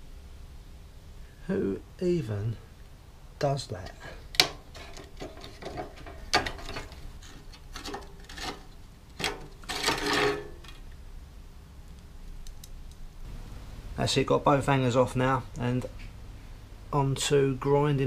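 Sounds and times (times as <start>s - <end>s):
metal scraping: 4.4s - 10.9s.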